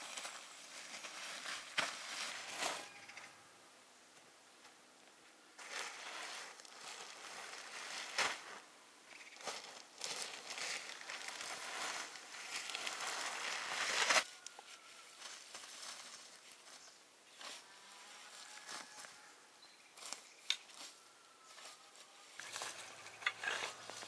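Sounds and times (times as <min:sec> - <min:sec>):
rake scraping leaves: 0:00.0 - 0:03.2, 0:05.6 - 0:19.3, 0:20.0 - 0:24.0
plastic sheet crinkling: 0:09.4 - 0:16.8.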